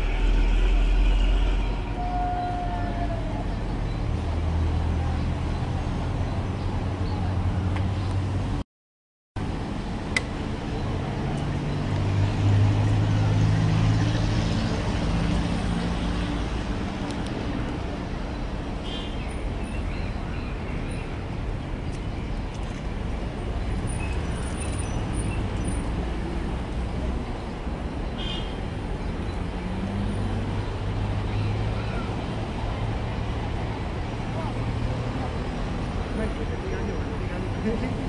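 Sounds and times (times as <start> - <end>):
rumble of passing vehicles: 0.0 - 8.6, 9.4 - 38.0.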